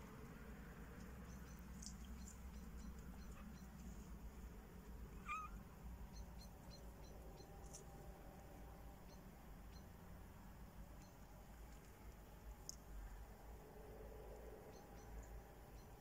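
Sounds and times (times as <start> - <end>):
cat meowing faintly: 5.2 - 5.6
faint high ticks: 11.0 - 13.0.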